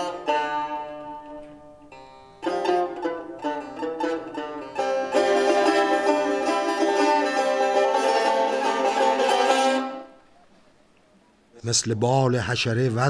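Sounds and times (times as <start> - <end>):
plucked strings music: 0.0 - 10.2.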